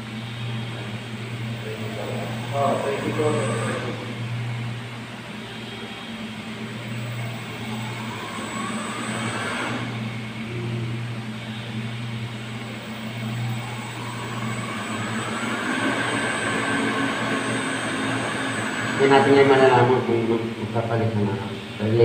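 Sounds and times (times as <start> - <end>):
water pump motor humming: 0.0 - 21.8
pump whine: 0.0 - 22.0.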